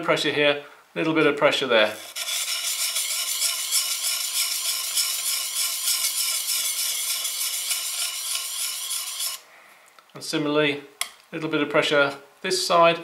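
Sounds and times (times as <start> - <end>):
blade scraping on sharpening plate: 2.0 - 9.4.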